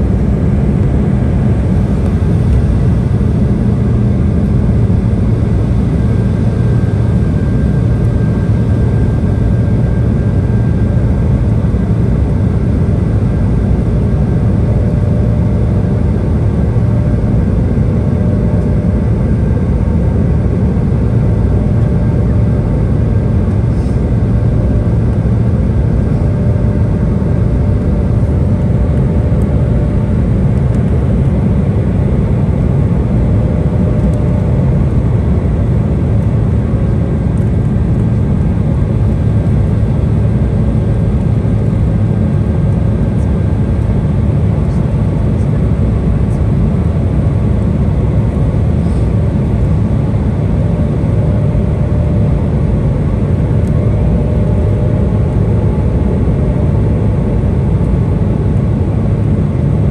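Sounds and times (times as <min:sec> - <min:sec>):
faint steady hum: 0:00.0 - 0:59.9
jet cabin rumble: 0:00.0 - 0:59.9.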